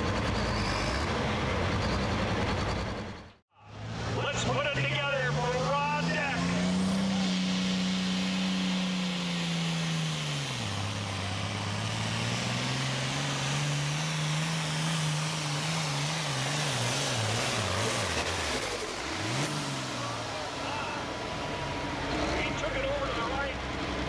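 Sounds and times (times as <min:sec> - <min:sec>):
tractor diesel engine at full throttle: 0:00.0 - 0:24.0.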